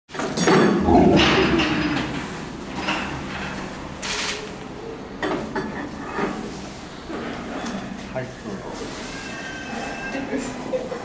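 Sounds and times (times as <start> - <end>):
lion growling: 0.8 - 2.4.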